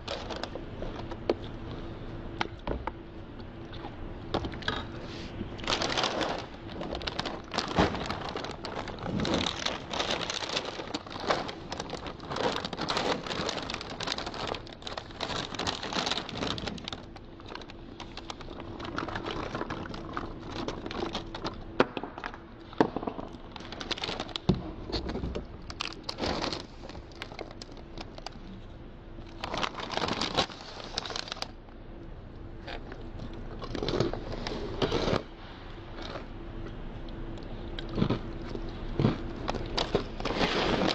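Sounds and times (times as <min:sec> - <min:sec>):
plastic bag crinkling: 0:00.0 - 0:02.0, 0:04.6 - 0:31.7, 0:37.8 - 0:40.9
dry cereal pouring and rattling: 0:05.6 - 0:21.2.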